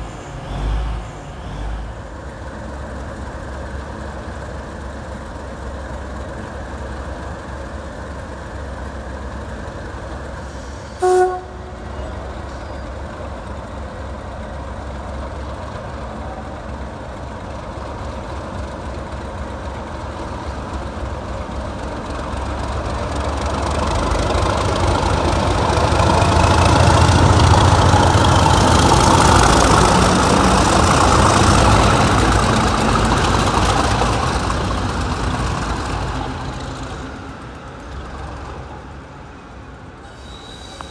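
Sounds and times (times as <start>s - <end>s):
diesel locomotive engines passing: 0.0s - 40.9s
locomotive horn toot: 11.0s - 12.2s.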